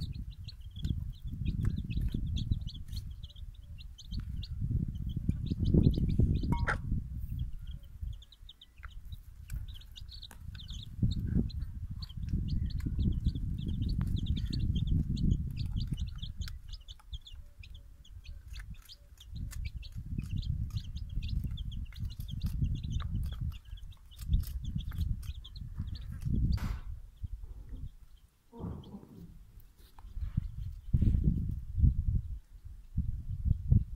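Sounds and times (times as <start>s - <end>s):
chicks peeping: 0.0s - 33.9s
low rumble: 27.3s - 29.6s.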